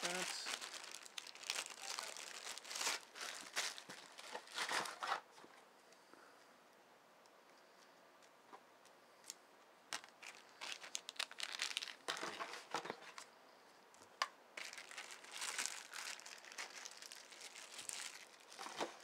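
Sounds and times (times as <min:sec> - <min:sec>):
packaging crinkling and rustling: 0:00.0 - 0:05.3, 0:09.9 - 0:13.3, 0:14.6 - 0:19.0.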